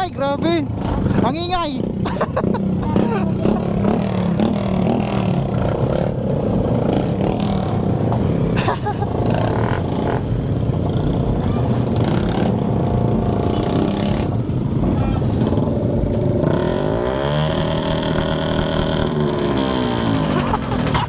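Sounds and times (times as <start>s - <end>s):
motorcycle engines revving: 0.0s - 21.0s.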